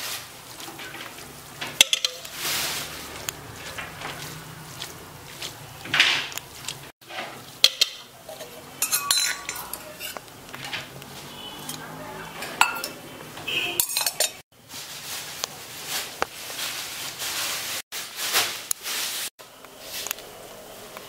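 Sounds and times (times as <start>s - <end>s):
metal spoon clinking on colander: 1.8s - 2.4s, 7.6s - 10.2s, 12.4s - 13.0s, 13.8s - 14.4s.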